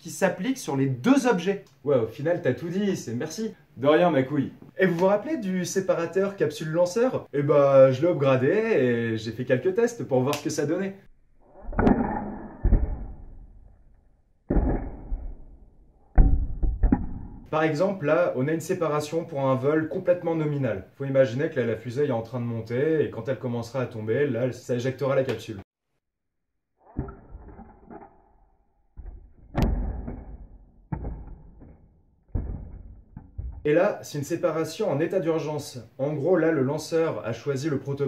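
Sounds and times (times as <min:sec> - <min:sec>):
sharp snap: 0:10.3 - 0:10.6
rocket separator thumps: 0:29.0 - 0:33.7
knocks and clunks: 0:31.0 - 0:33.7.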